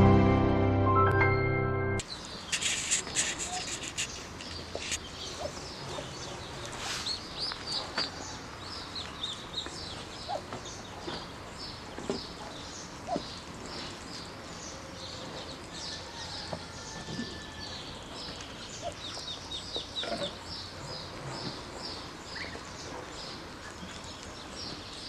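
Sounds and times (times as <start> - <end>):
ducklings peeping: 2.1 - 25.0.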